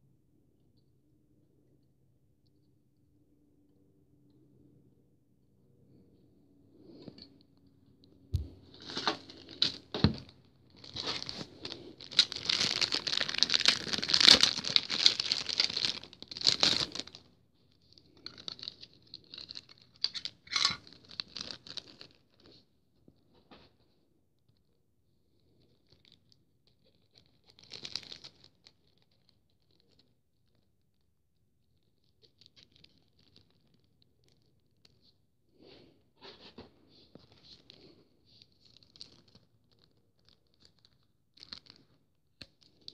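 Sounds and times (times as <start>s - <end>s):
plastic bag crinkling and tearing: 8.4s - 17.3s, 18.1s - 22.4s, 27.2s - 29.8s, 38.6s - 42.9s.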